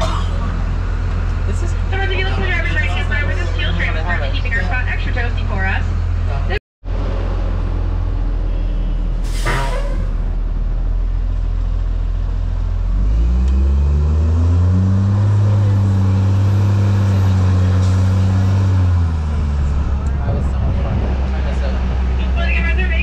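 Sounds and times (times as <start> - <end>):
tram engine running: 0.0 - 13.1, 15.0 - 23.0
brief burst of noise: 9.2 - 10.4.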